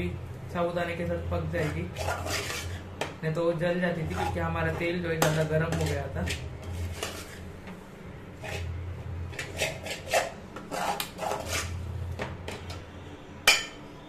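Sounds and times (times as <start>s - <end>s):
spoon scraping metal pan: 1.5s - 2.9s, 3.9s - 7.5s, 8.4s - 11.8s.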